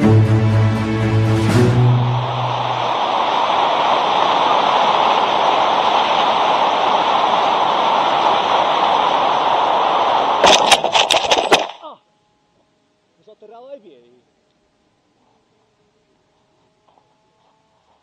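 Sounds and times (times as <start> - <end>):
wind rushing past camera: 1.2 - 11.8.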